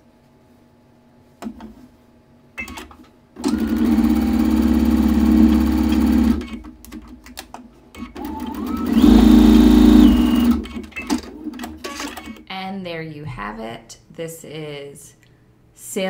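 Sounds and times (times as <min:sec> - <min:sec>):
sewing machine motor whining: 0:03.4 - 0:06.6, 0:08.1 - 0:10.9.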